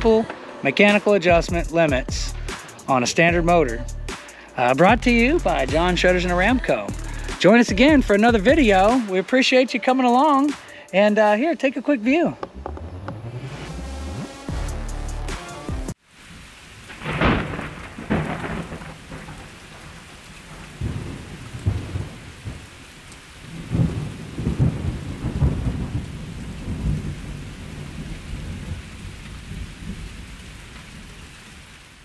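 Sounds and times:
steady rain: 0.0s - 3.6s, 4.2s - 11.3s, 15.9s - 32.0s
thunder rolling: 16.8s - 22.7s, 23.4s - 31.1s.

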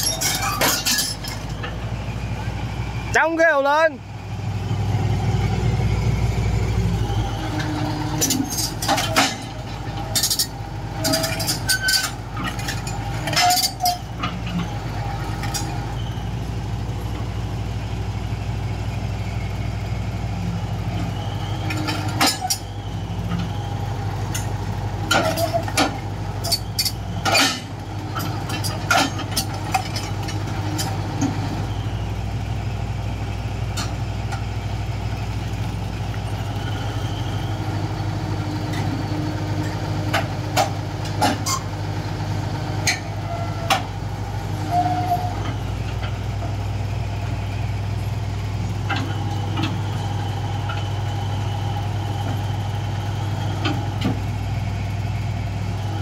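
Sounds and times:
metallic track clanks: 0.0s - 1.8s, 7.5s - 14.7s, 24.3s - 31.0s
track squeaks on steel: 0.0s - 2.4s, 6.0s - 18.0s, 20.6s - 32.3s, 35.2s - 41.8s, 42.8s - 48.1s, 48.8s - 54.4s
excavator diesel engine running: 0.0s - 56.0s.

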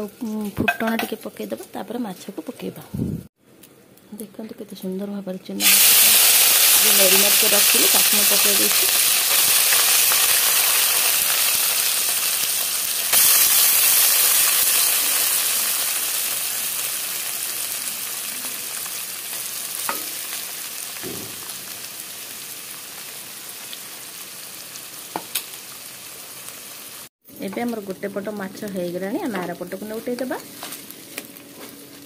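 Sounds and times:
fish sizzling in hot oil: 5.6s - 27.1s.

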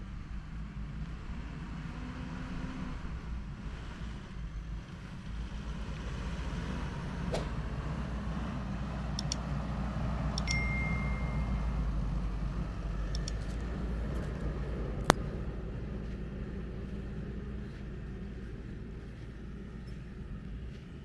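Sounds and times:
steady low rumble: 0.0s - 21.0s
mouse clicks: 9.2s - 9.5s, 13.1s - 13.6s
ringing ding: 10.4s - 11.8s.

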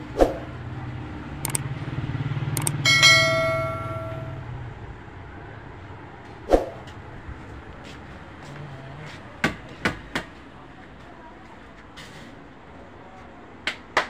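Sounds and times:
low hum: 1.3s - 5.6s
metal object ringing: 2.6s - 4.5s.

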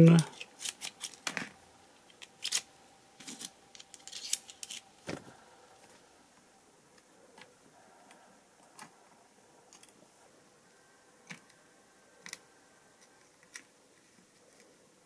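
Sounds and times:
metallic clicks and scrapes: 0.2s - 1.4s, 2.1s - 4.9s.

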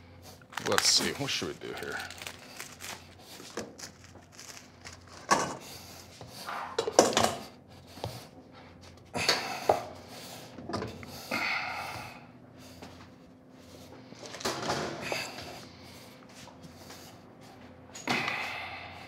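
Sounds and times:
kitchen knocks and clatters: 5.1s - 5.6s, 6.4s - 7.5s, 14.2s - 15.1s.

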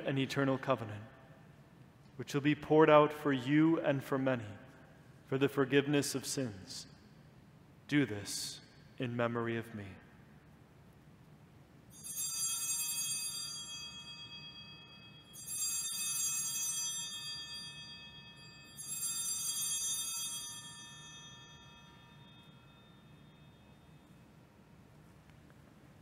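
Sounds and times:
altar bells ringing: 11.9s - 24.6s.

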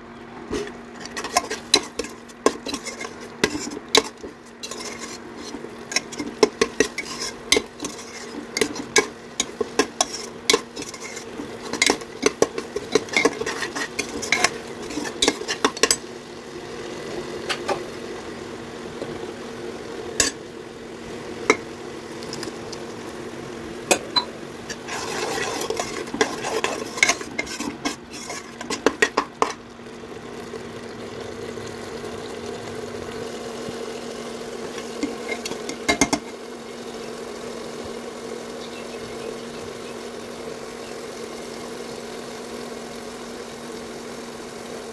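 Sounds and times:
low sizzle: 0.0s - 44.9s
spoon scraping and clinking on pot: 0.5s - 16.0s, 20.2s - 20.4s, 23.9s - 29.6s, 34.8s - 36.3s.

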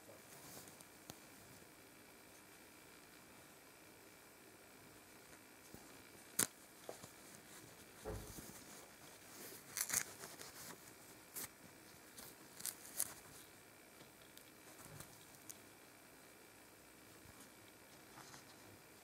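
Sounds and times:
soft bump: 8.0s - 8.4s.

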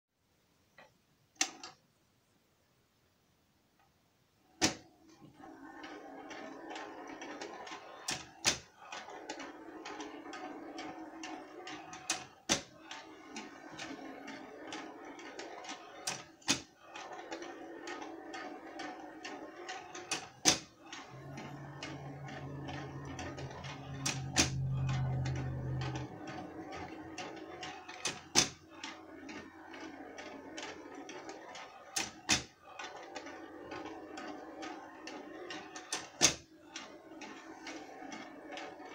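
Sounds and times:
ball rolling with rattle and ticking: 4.6s - 38.9s
low hum: 21.0s - 27.4s.

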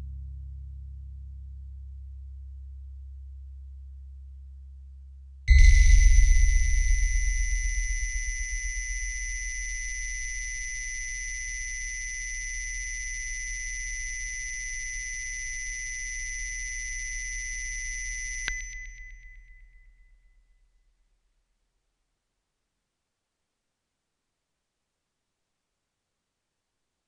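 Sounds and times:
high-pitched test tones: 5.5s - 19.8s
deep low tone: 5.5s - 20.2s
click: 18.2s - 19.2s.

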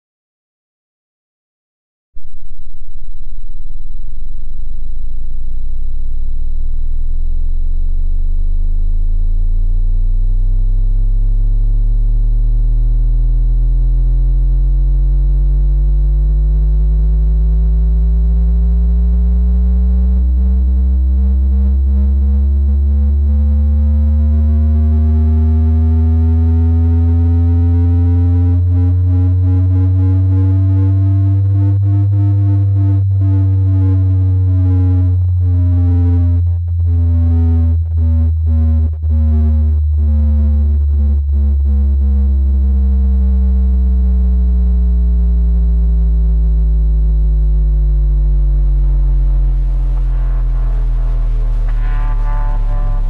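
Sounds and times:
synthesizer bass tone rising in pitch: 2.2s - 53.0s.

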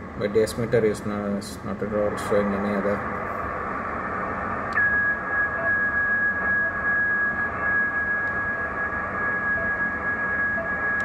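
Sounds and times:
radio receiver hiss: 1.5s - 11.0s
high-pitched carrier whistle: 4.8s - 11.0s.

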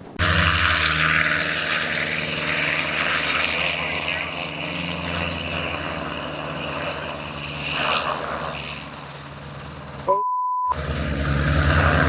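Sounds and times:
helicopter rotor chopping: 0.0s - 10.2s, 10.8s - 12.0s
short steady beep: 10.1s - 10.8s.

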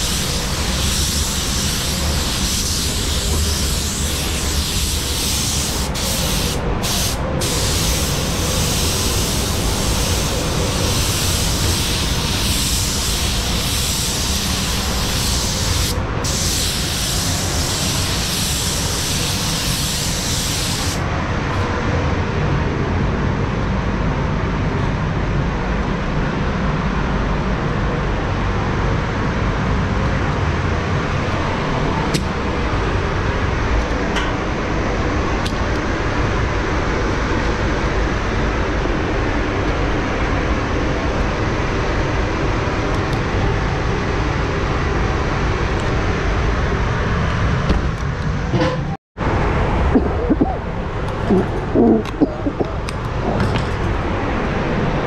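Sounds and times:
paint spray gun hissing: 0.0s - 21.0s
air extraction rumble: 0.0s - 55.0s.

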